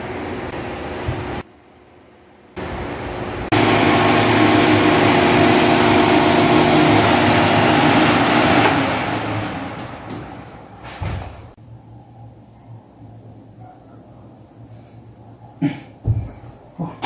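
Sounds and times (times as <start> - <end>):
table fan running: 2.6 - 11.0.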